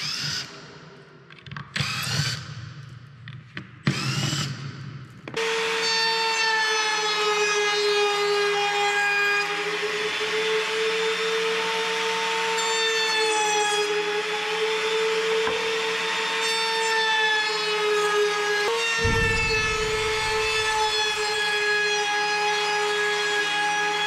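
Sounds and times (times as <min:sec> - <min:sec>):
wood router whining: 0:05.4 - 0:19.0.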